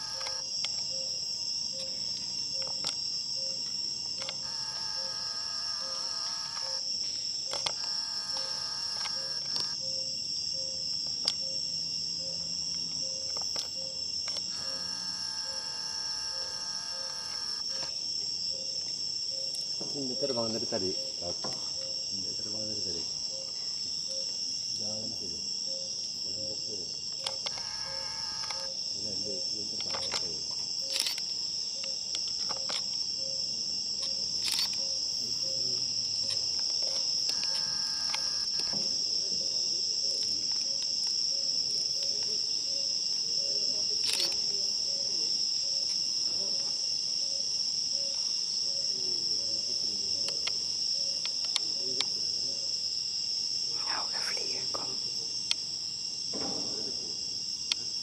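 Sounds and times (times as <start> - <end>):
insects chirping: 0.0 - 58.0
brief trilling calls: 14.5 - 17.9.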